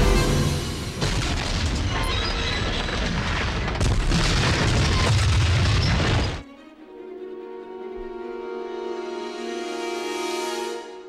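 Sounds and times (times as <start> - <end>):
music: 0.0 - 1.2, 6.4 - 11.0.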